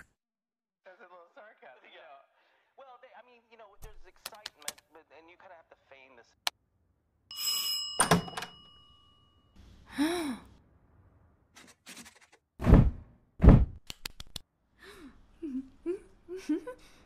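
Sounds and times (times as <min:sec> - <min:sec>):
small vocal noises: 0:14.8 - 0:17.0.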